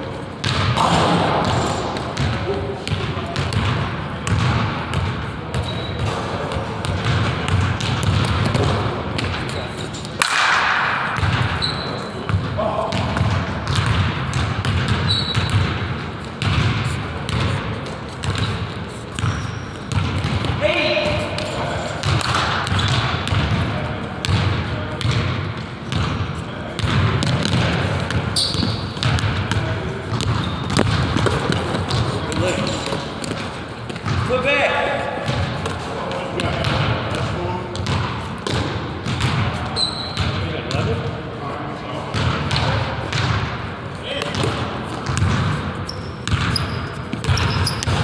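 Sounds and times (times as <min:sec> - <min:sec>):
basketball bouncing on wooden floor: 0:00.4 - 0:06.0, 0:06.8 - 0:09.4, 0:11.2 - 0:26.2, 0:26.8 - 0:34.3, 0:36.4 - 0:39.5, 0:40.1 - 0:40.9, 0:44.2 - 0:48.0
shoe squeaks and clicks: 0:05.6 - 0:06.2, 0:11.5 - 0:12.3, 0:15.0 - 0:15.6, 0:18.2 - 0:20.0, 0:22.7 - 0:23.1, 0:28.3 - 0:29.1, 0:30.1 - 0:31.4, 0:39.7 - 0:40.4, 0:45.8 - 0:48.0.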